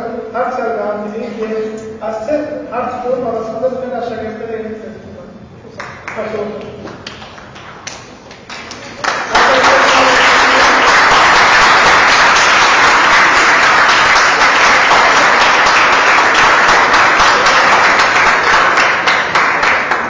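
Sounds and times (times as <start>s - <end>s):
audience applauding: 6.9s - 20.0s.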